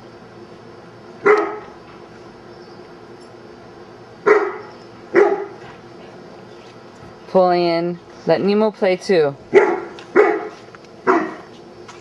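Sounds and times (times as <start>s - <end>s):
dog barking: 1.2s - 1.8s, 4.2s - 5.7s, 9.5s - 11.5s.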